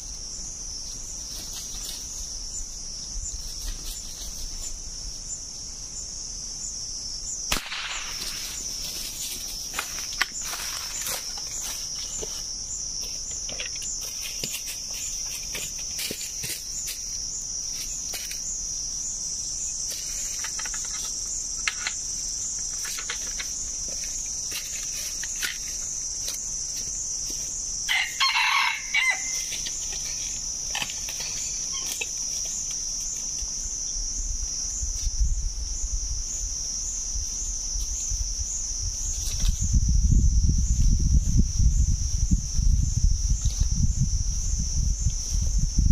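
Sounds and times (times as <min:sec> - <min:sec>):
high-pitched insect buzz: 0:00.0 - 0:45.9
rooster crowing: 0:27.9 - 0:29.6.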